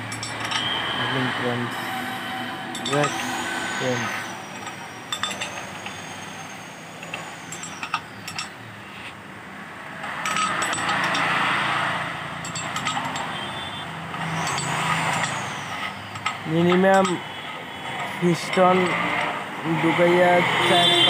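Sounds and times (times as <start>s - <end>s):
metal clicks and clinks: 0.0s - 0.9s, 2.8s - 3.2s, 4.5s - 6.0s, 7.0s - 8.6s, 10.2s - 11.4s, 12.4s - 17.3s
rushing noise: 0.0s - 21.0s.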